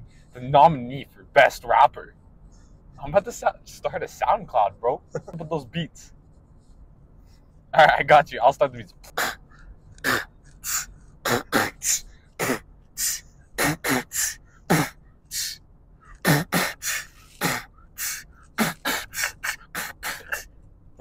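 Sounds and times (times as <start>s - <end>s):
man beatboxing: 9.0s - 9.4s, 10.0s - 15.6s, 16.2s - 20.4s.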